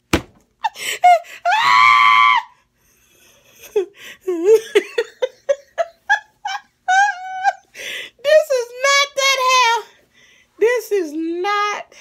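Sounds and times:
long high cry: 0:01.4 - 0:02.6
woman giggling: 0:03.2 - 0:07.8.

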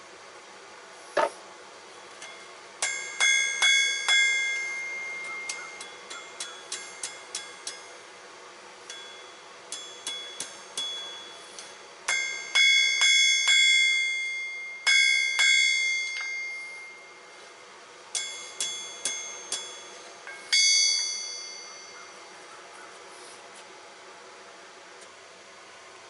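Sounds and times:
hammer ringing on anvil: 0:02.2 - 0:08.1, 0:08.8 - 0:17.4, 0:18.1 - 0:22.4.

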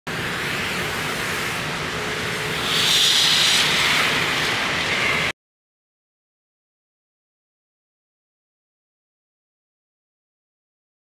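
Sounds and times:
smoke grenades hissing: 0:02.5 - 0:04.8.

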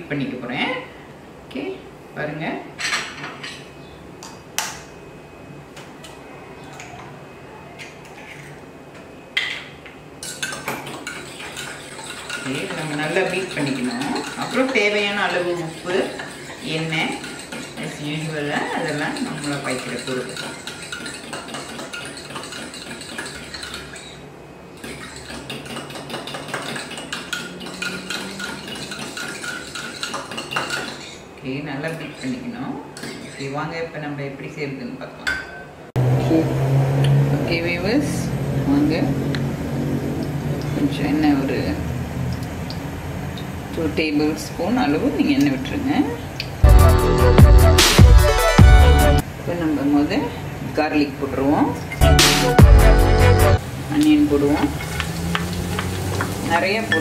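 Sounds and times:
utensil clinking against mug: 0:24.8 - 0:31.2.

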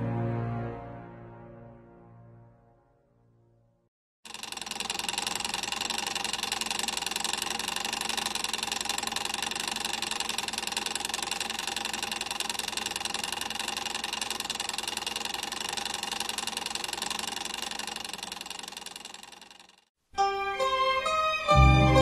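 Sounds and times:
rapid mechanical clatter: 0:04.3 - 0:19.9.

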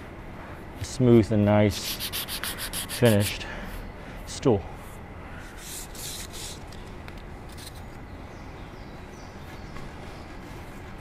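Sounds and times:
low background noise: 0:00.0 - 0:11.0
sandpaper sanding wood: 0:01.7 - 0:03.4, 0:05.6 - 0:06.6.

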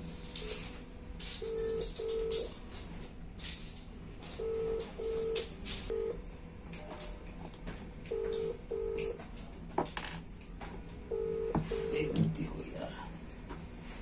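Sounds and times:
telephone ringback tone: 0:01.4 - 0:02.5, 0:04.4 - 0:06.2, 0:08.1 - 0:09.2, 0:11.1 - 0:12.1.

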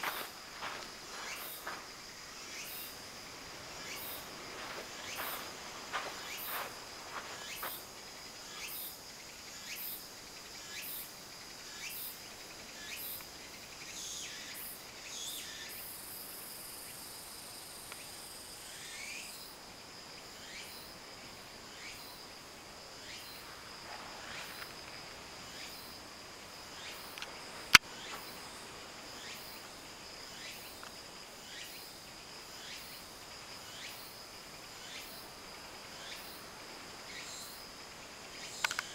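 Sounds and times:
insects chirping: 0:00.0 - 0:38.9.

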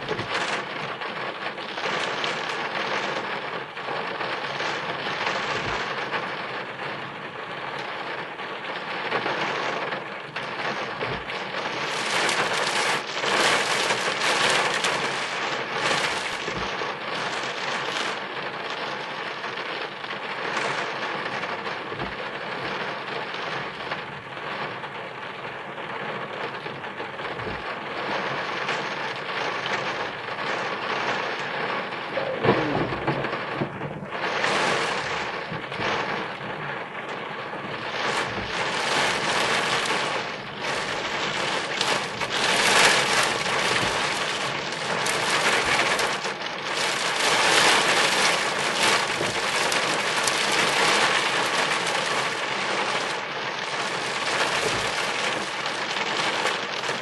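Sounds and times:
heavy rain on a car: 0:00.0 - 0:57.0
sharp thunder crack: 0:31.6 - 0:46.1.

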